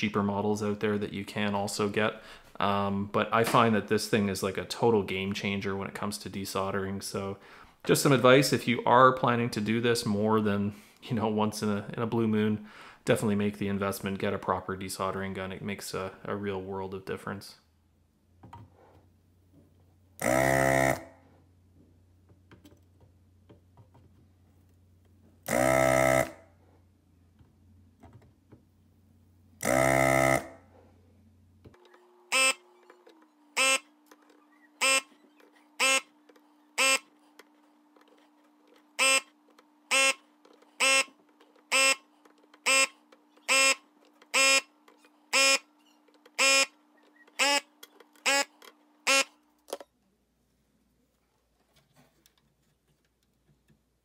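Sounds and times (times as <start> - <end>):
desoldering vacuum pump buzzing: 20.2 - 21.2, 25.4 - 26.4, 29.6 - 30.7, 31.8 - 32.9, 33.5 - 34.2, 34.8 - 36.1, 36.7 - 37.1, 38.9 - 40.2, 40.8 - 49.3.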